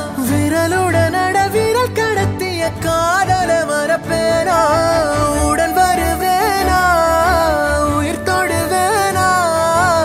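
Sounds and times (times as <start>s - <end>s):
melody on long ornamented notes: 0.1s - 10.0s.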